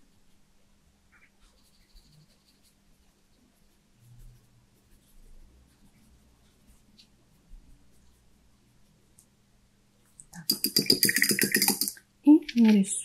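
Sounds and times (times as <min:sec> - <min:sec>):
paintbrush scratching on paper: 0:01.1 - 0:08.9, 0:10.4 - 0:12.0.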